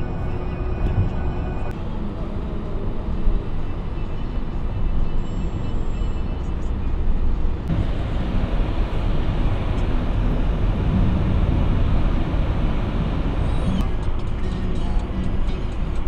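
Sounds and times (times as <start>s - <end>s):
road and engine rumble in car: 0.0s - 16.0s.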